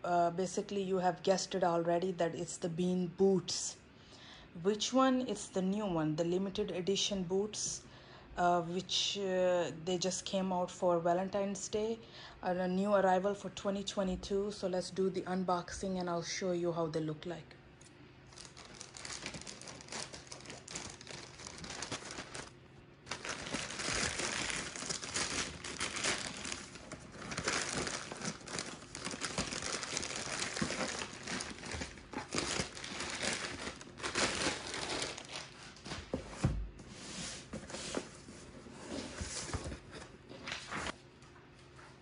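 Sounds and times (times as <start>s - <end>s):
plastic bag crinkling and tearing: 18.3s - 35.9s.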